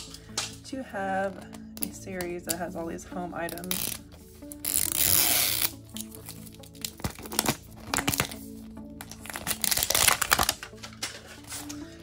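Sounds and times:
light background music: 0:00.0 - 0:12.0
plastic packaging crinkling: 0:04.6 - 0:12.0.

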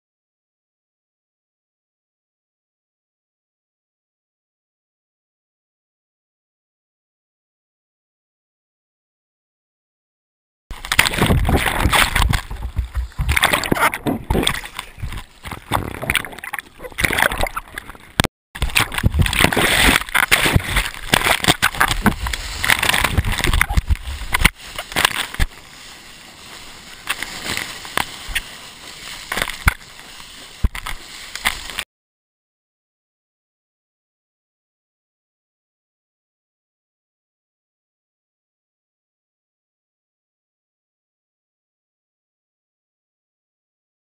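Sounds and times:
seawater sloshing and splashing: 0:10.7 - 0:31.8.

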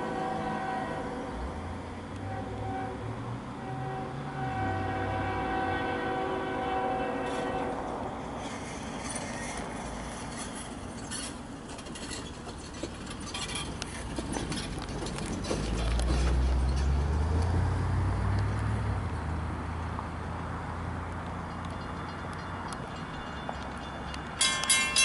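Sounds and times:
train horn long blast: 0:00.0 - 0:08.2
train rumble with clicks: 0:00.0 - 0:17.6, 0:20.9 - 0:25.0.

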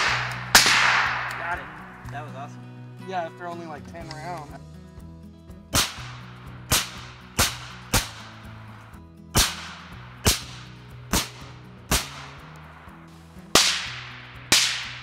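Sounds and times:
rifle shots echoing: 0:00.0 - 0:02.0, 0:05.7 - 0:08.4, 0:09.3 - 0:12.4, 0:13.5 - 0:15.0.

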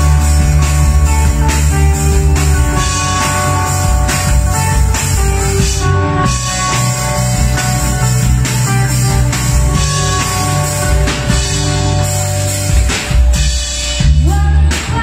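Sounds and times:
drum kit beat: 0:00.0 - 0:15.0
electric bass: 0:00.0 - 0:15.0
electric guitar: 0:00.0 - 0:15.0.

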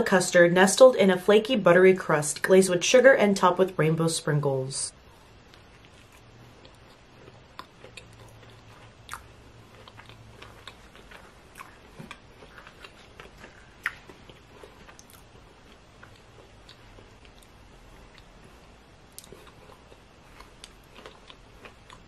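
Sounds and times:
biting and chewing pastry: 0:05.4 - 0:22.0.

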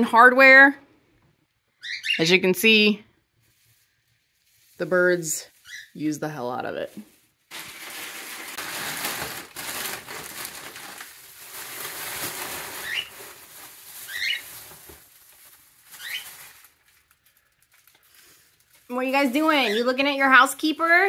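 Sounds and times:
cockatiel chirps: 0:01.8 - 0:02.3, 0:05.6 - 0:06.0, 0:14.0 - 0:14.4, 0:16.0 - 0:16.3
wood shavings rustling: 0:03.4 - 0:21.0.

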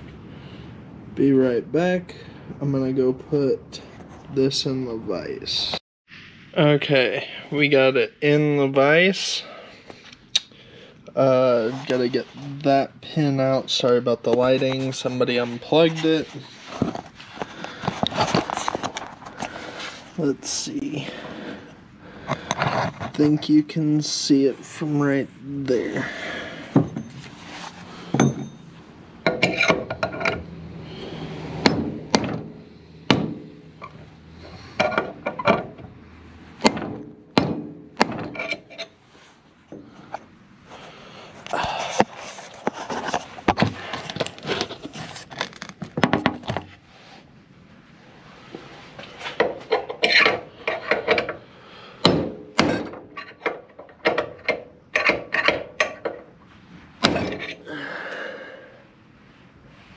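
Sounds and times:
metal scraping and rattling: 0:26.6 - 0:39.1, 0:48.6 - 0:51.4
hammer striking metal: 0:28.2 - 0:28.7.

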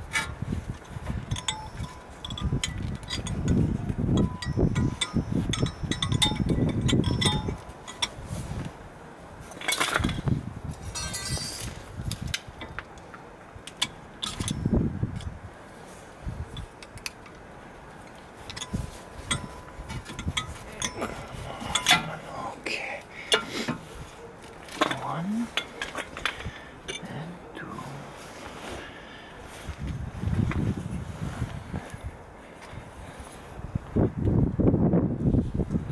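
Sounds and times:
metallic clicks and clinks: 0:01.2 - 0:08.2, 0:10.8 - 0:13.1, 0:13.7 - 0:15.3, 0:18.0 - 0:22.2.

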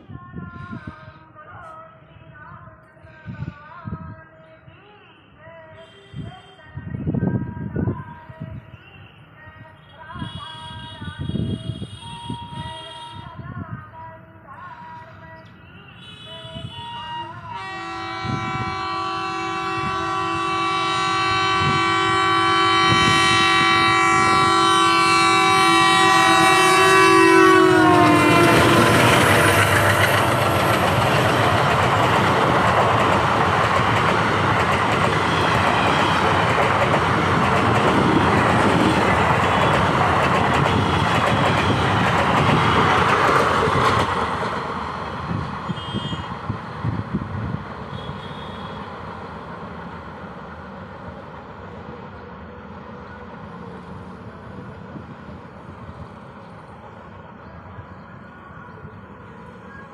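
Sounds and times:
train air horn: 0:05.8 - 0:06.7, 0:10.2 - 0:13.4, 0:15.9 - 0:31.4, 0:35.1 - 0:36.6, 0:38.4 - 0:42.1, 0:45.3 - 0:46.4, 0:47.9 - 0:49.0
train wheels rumbling and clattering: 0:25.3 - 0:50.3.

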